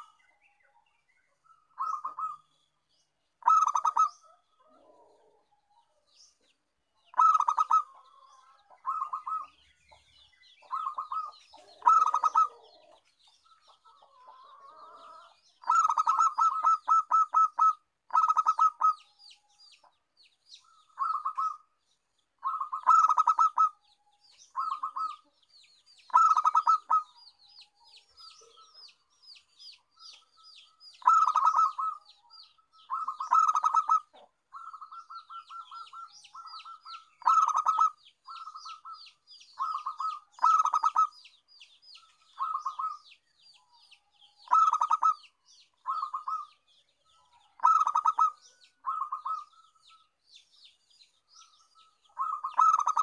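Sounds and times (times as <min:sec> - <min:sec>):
small bird chirping: 0:00.0 - 0:53.0
dove cooing: 0:01.5 - 0:02.6, 0:03.4 - 0:05.6, 0:07.1 - 0:09.6, 0:10.6 - 0:13.0, 0:13.8 - 0:19.0, 0:20.6 - 0:21.7, 0:22.4 - 0:23.8, 0:24.6 - 0:25.3, 0:26.1 - 0:27.2, 0:31.0 - 0:41.2, 0:42.2 - 0:43.0, 0:44.4 - 0:46.6, 0:47.4 - 0:49.8, 0:52.1 - 0:53.0.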